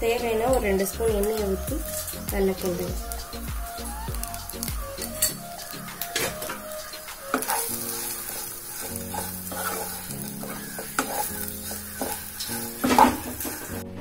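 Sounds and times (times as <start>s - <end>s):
food sizzling in oil: 0.0s - 14.0s
spatula scraping and knocking pan: 5.0s - 13.8s.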